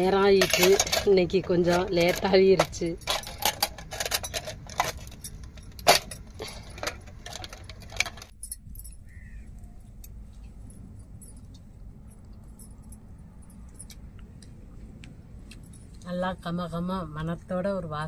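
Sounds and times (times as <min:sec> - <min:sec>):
metal containers clinking: 0:00.0 - 0:09.2.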